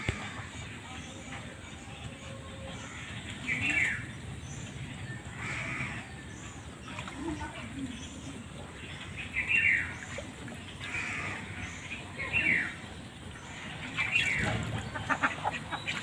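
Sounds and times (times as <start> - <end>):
ducks quacking: 5.3 - 6.1, 10.8 - 12.8, 13.4 - 16.0.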